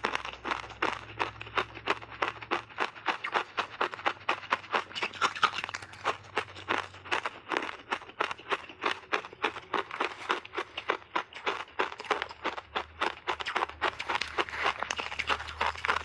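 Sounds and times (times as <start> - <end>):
chewing crunchy shaved ice: 0.0 - 16.0.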